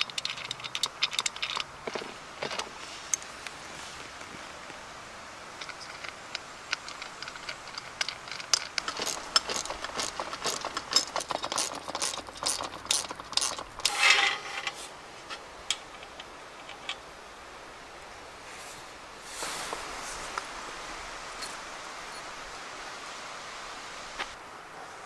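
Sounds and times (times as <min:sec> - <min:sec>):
metallic tool clicks and rattles: 0:00.0 - 0:03.3, 0:05.6 - 0:14.8
scrape: 0:13.8 - 0:14.9, 0:18.4 - 0:20.4.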